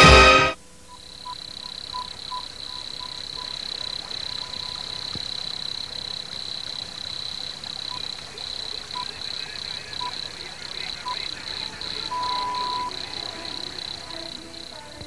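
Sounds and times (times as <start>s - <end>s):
brass music: 0.0s - 0.6s
high-pitched chirring: 7.8s - 14.8s.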